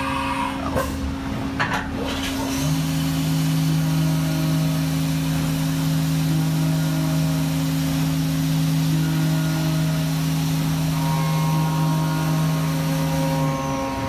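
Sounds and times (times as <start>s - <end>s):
milling machine hum: 0.0s - 14.0s
hiss of coolant spray: 2.3s - 10.9s.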